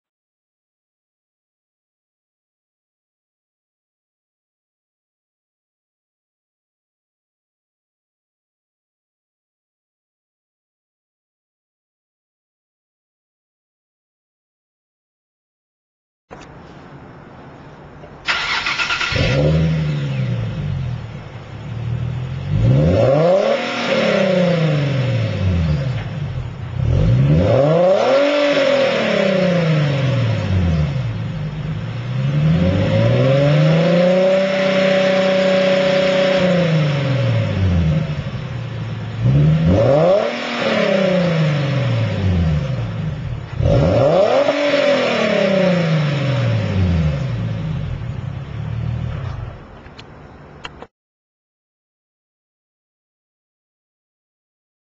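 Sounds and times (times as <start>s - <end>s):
car engine revving: 18.3s - 49.6s.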